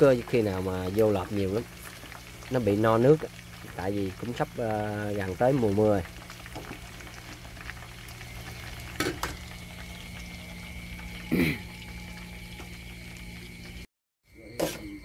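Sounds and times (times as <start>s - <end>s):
frying in hot oil: 0.0s - 15.0s.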